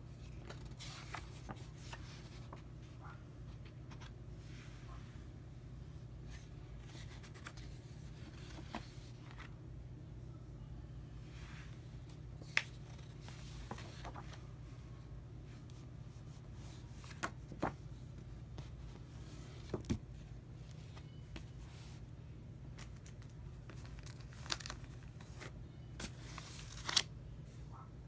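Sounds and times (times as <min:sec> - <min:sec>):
low steady hum: 0:00.0 - 0:28.0
paper and cardboard rustling: 0:00.2 - 0:02.7.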